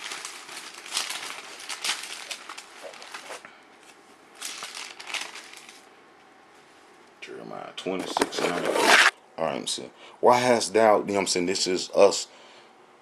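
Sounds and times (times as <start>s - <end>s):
book pages turning: 8.0s - 9.2s.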